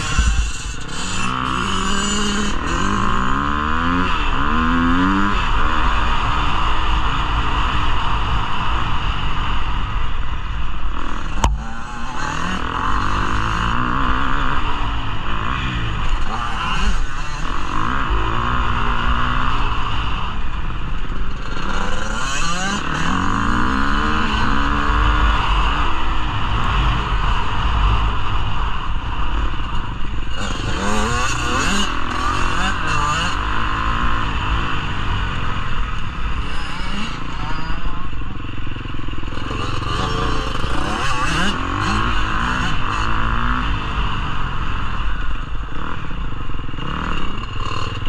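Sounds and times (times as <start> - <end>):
dirt bike engine revving: 0.0 - 9.8, 10.9 - 48.0
wind rumble on microphone: 0.0 - 22.7.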